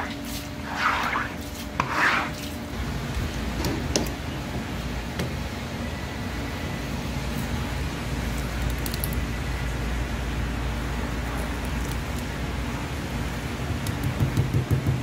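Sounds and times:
water swishing across cutting board: 0:00.0 - 0:02.6.

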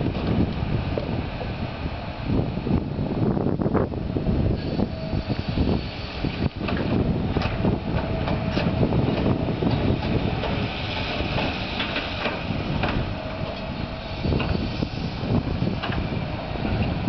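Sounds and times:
excavator engines rumbling: 0:00.0 - 0:17.0
clanks and knocks: 0:06.6 - 0:13.7, 0:15.8 - 0:16.1.

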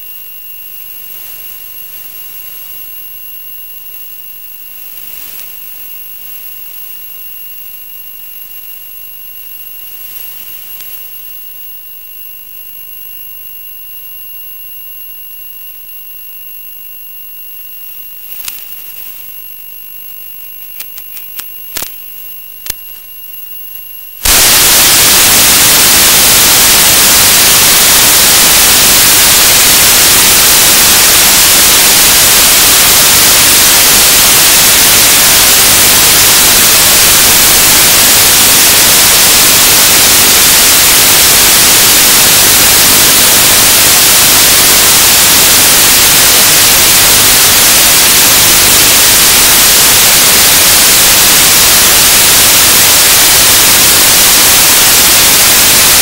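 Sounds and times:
high-pitched whine tones: 0:00.0 - 0:56.0
loud white-noise static: 0:00.0 - 0:56.0
sharp crackles: 0:03.8 - 0:07.0, 0:08.3 - 0:11.2, 0:18.0 - 0:56.0
low hiss: 0:20.5 - 0:56.0.

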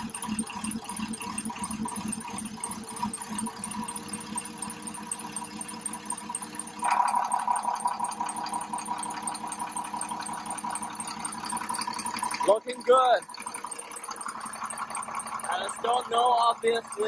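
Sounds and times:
diesel engine idling: 0:00.0 - 0:17.0.

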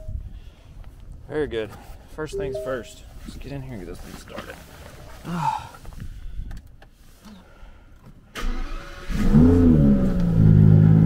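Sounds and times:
car engine starting and idling: 0:08.3 - 0:11.0.

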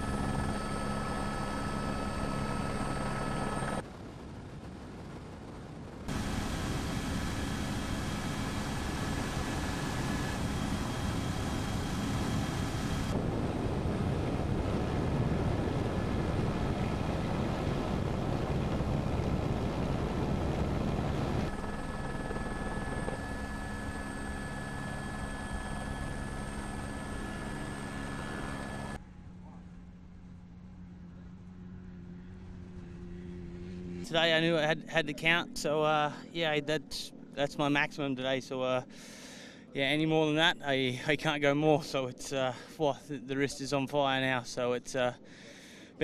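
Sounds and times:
rally car engines running: 0:06.1 - 0:35.0.

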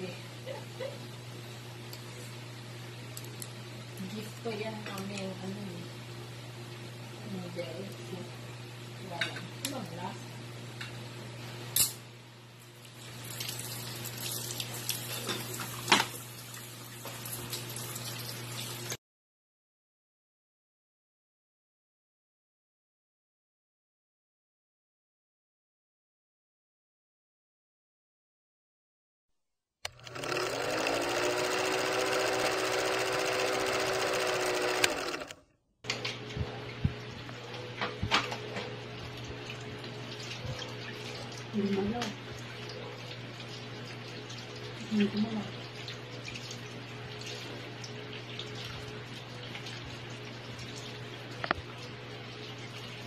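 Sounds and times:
running tap water: 0:13.0 - 0:19.0, 0:39.3 - 0:53.0
film projector whirring: 0:29.8 - 0:35.4.

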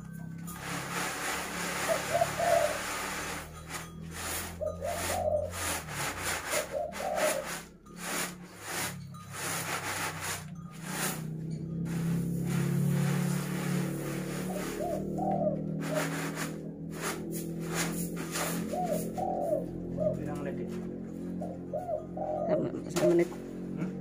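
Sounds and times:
rice rattling in winnowing tray: 0:00.1 - 0:11.3, 0:15.8 - 0:19.1.

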